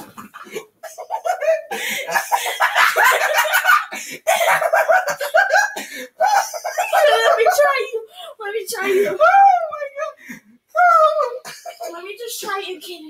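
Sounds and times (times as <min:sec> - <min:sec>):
children laughing loudly: 0:00.0 - 0:08.1.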